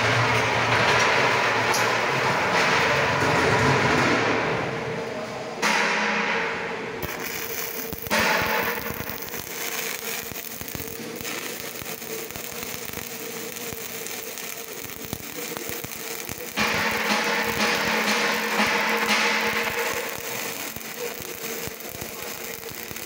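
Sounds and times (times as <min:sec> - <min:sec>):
welding arc crackling and sputtering: 0:07.0 - 0:23.0.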